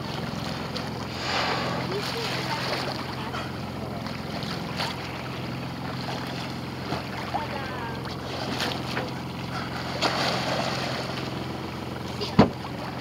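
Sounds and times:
water washing along hull: 0.0s - 13.0s
low hum: 0.4s - 4.2s.

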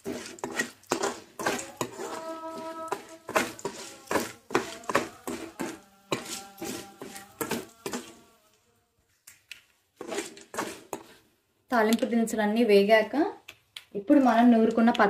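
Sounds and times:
metal ladle scraping metal pan: 0.0s - 8.5s, 10.0s - 11.3s.

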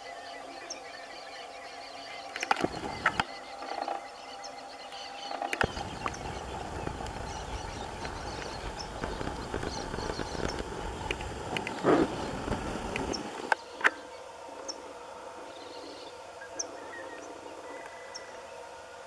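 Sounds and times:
distant bird chirps: 0.0s - 14.8s
low rumbling noise: 1.5s - 4.7s, 5.5s - 19.0s.

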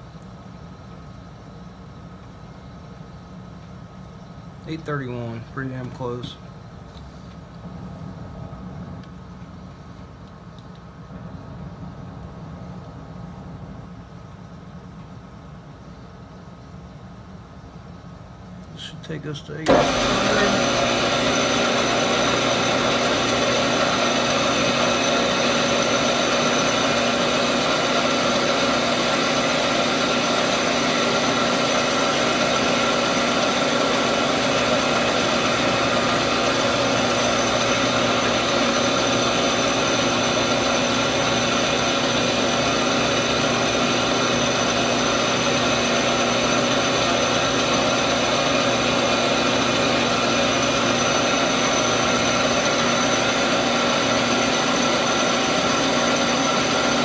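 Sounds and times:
metal lathe whining: 19.6s - 57.0s.

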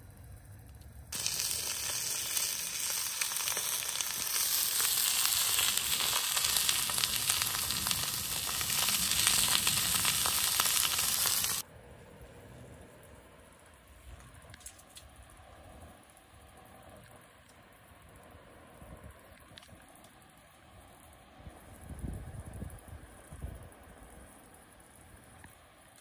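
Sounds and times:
food sizzling in a hot pan: 1.1s - 11.6s.

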